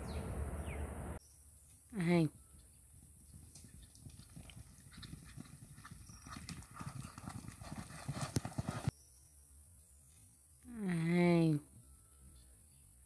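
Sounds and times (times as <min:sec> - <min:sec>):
hoofbeats galloping on sand: 0:03.0 - 0:08.9.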